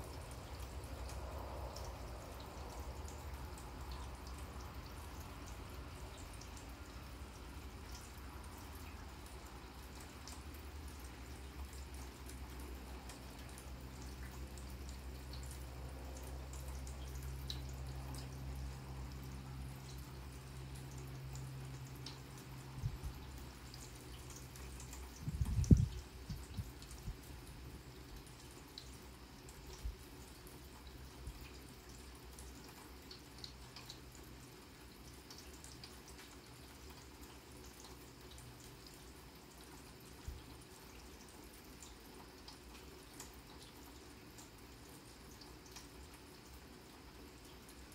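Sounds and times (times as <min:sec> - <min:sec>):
drips ticking: 0:00.0 - 0:47.9
light rain on grass: 0:00.0 - 0:47.9.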